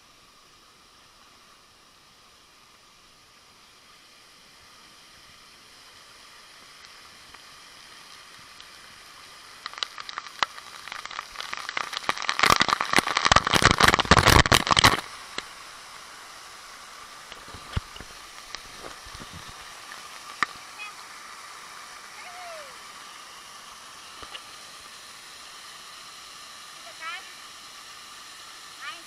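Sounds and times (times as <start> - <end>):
waterfall rushing: 8.8 - 29.0.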